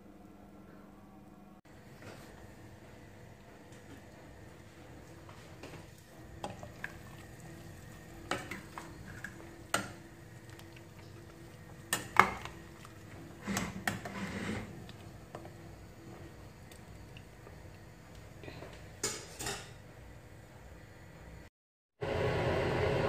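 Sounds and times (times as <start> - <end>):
utensil scraping a metal pot: 13.3 - 14.8.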